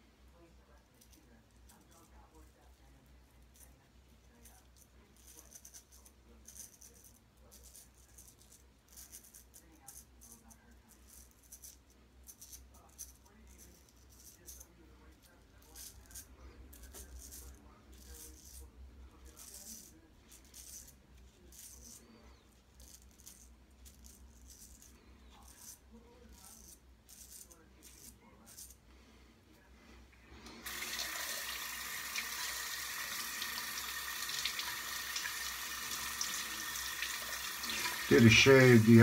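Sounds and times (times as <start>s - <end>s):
razor scraping stubble: 15.6s - 28.8s, 30.6s - 39.0s.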